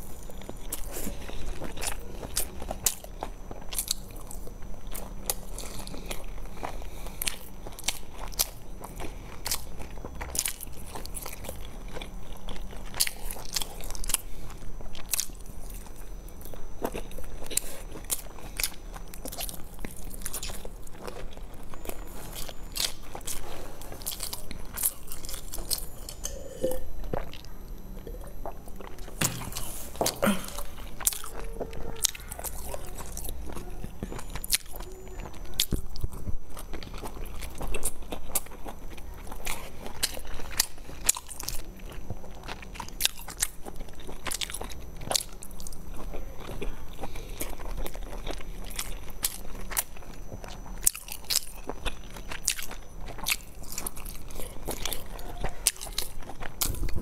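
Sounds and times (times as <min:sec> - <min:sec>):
chewing and biting dumplings: 0:00.0 - 0:57.0.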